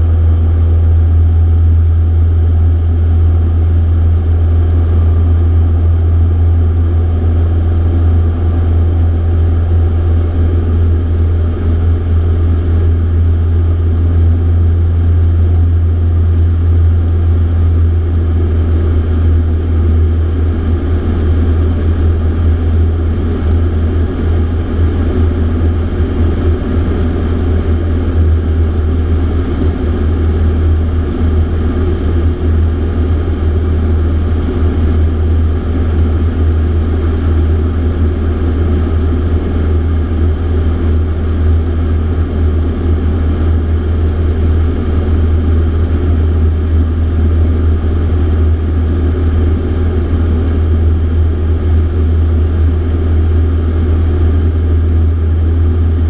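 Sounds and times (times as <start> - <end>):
airplane engine and propeller drone: 0.0 - 56.0.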